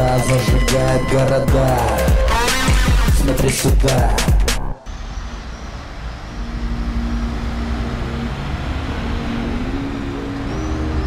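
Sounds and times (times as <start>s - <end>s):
engine note rising in pitch: 4.7s - 11.0s
vehicles driving past: 4.9s - 11.0s.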